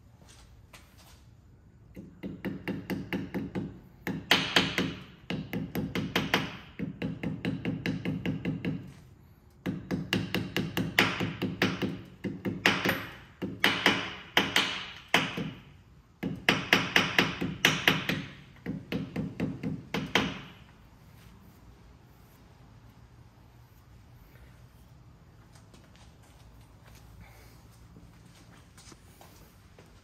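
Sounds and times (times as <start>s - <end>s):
hammer tapping metal: 1.9s - 8.9s, 9.6s - 20.7s.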